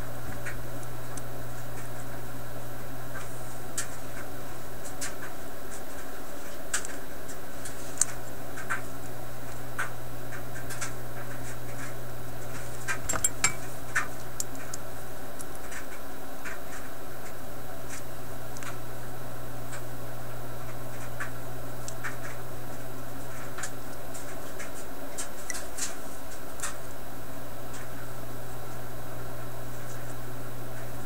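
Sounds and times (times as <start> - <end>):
steady low hum: 0.0 - 31.0
small metal clicks and scraping: 12.5 - 14.8.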